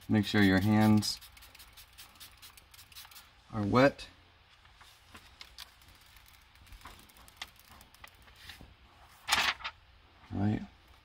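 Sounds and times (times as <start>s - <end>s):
plastic film clicks and rustles: 5.2s - 8.4s.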